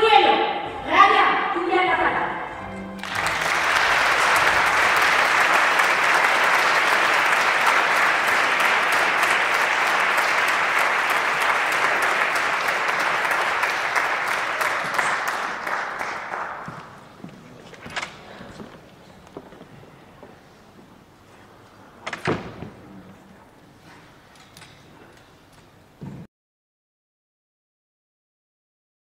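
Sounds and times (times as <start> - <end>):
audience applauding: 3.0 - 17.1.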